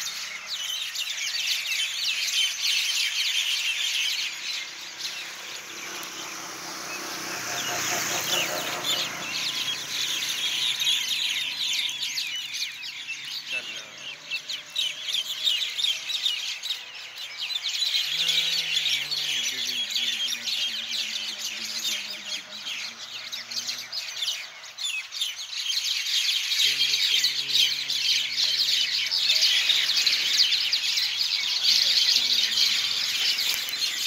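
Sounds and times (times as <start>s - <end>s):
flock of birds chattering: 0.0s - 34.0s
distant voice holding low notes: 18.0s - 24.2s.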